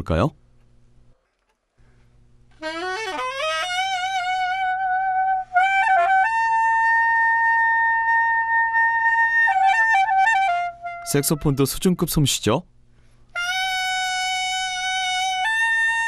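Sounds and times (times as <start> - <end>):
slow saxophone melody: 2.5 - 11.6, 13.3 - 16.0.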